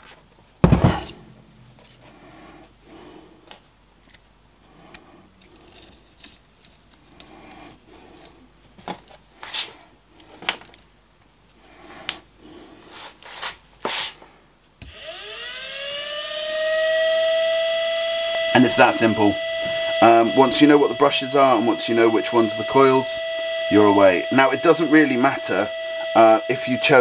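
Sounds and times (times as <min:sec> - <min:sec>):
electric motor whining: 0:14.8 - 0:27.0.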